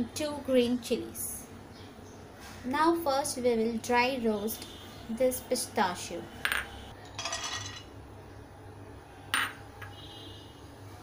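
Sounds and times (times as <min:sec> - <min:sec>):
nuts rattling in a pan: 0:07.2 - 0:07.9.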